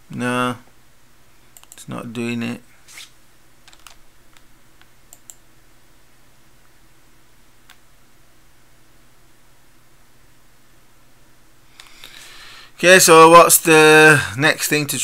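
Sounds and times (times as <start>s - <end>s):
low steady hum: 0.0s - 15.0s
faint computer clicks: 1.5s - 1.9s, 3.7s - 5.4s.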